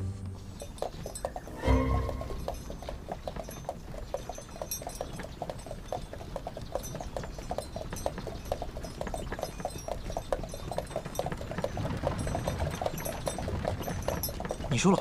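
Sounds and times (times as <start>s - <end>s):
horse hooves clip-clopping: 0.0s - 15.0s.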